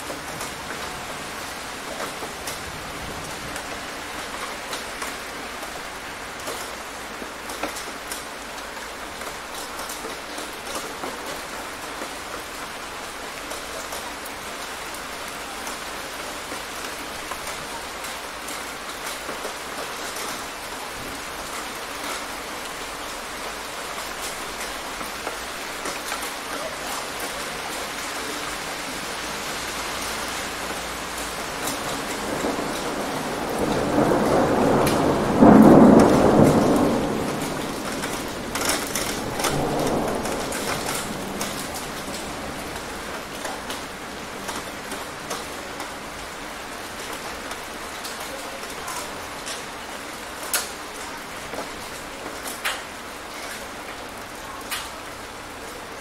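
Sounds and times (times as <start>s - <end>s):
steady rain falling: 0.0s - 56.0s
thunder rumbling: 29.5s - 52.6s
sharp thunder cracks: 31.6s - 45.5s.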